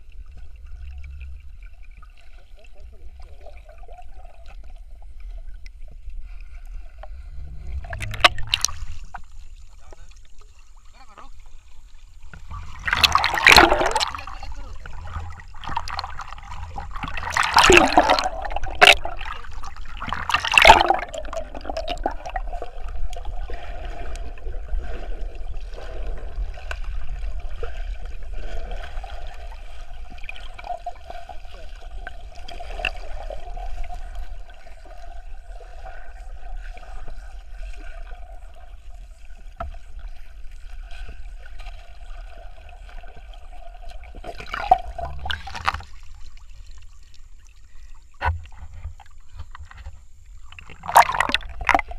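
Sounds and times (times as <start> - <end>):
muffled underwater water noise: 0.0 - 51.9
low hum: 5.1 - 10.8
loud splashing: 12.6 - 22.4.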